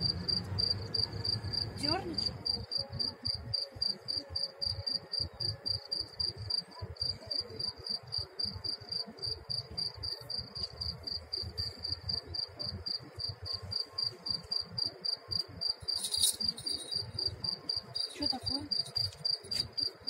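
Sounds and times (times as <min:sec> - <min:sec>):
cricket chirping: 0:00.0 - 0:20.0.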